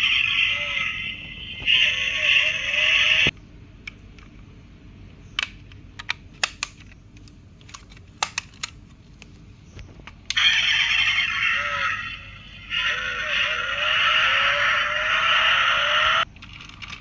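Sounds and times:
toy engine sound effect: 0.0s - 3.3s, 10.3s - 16.2s.

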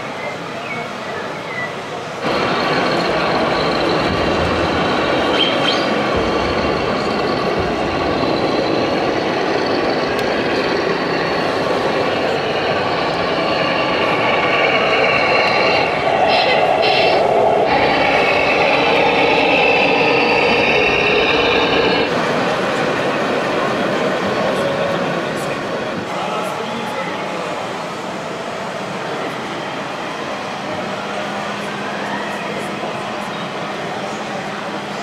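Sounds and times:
diesel engine sound from loudspeaker: 2.2s - 22.3s.

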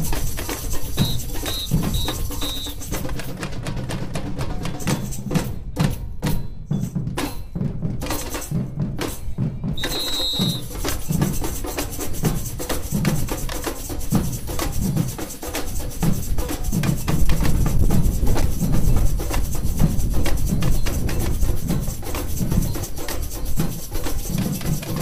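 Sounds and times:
hand percussion clatter: 0.0s - 25.0s
short high whistle: 1.0s - 2.8s, 9.8s - 10.8s.

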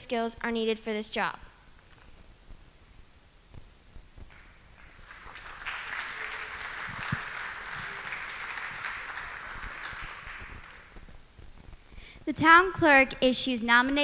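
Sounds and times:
audience clapping: 4.3s - 11.2s.

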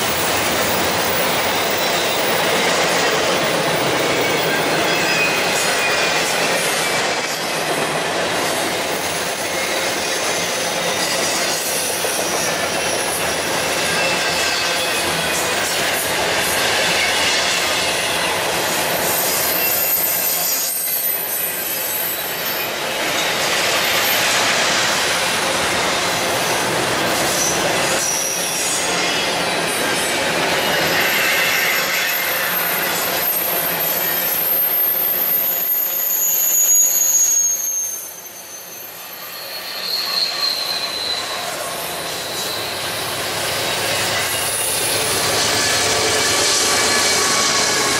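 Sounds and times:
steel wheels rolling on rail: 0.0s - 47.9s
high-pitched wheel squeals: 3.8s - 7.5s, 16.6s - 24.4s, 30.4s - 47.9s.

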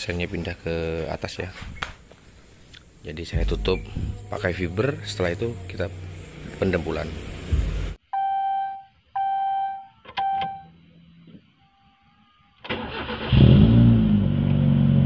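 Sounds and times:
car engine starting and idling: 3.2s - 8.0s, 12.6s - 15.0s
short electronic beeps: 8.1s - 10.7s.

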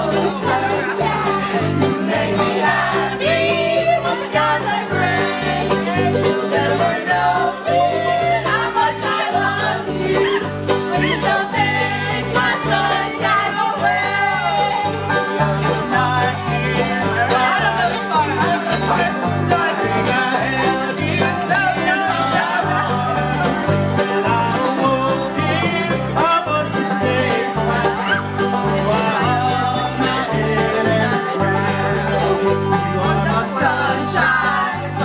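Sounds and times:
women singing: 0.0s - 23.6s, 24.2s - 32.3s, 33.1s - 35.0s
banjo: 0.0s - 35.0s
bass line: 0.0s - 35.0s
bluegrass band playing: 0.0s - 35.0s.

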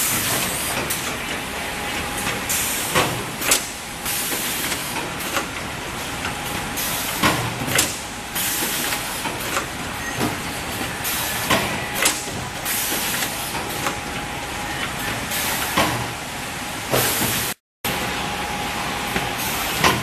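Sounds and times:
packaging machine hiss: 6.8s - 9.6s, 10.8s - 13.8s.

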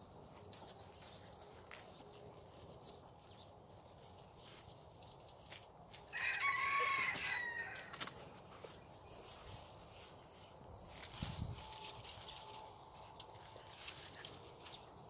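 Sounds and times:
rooster crowing: 6.1s - 8.0s.

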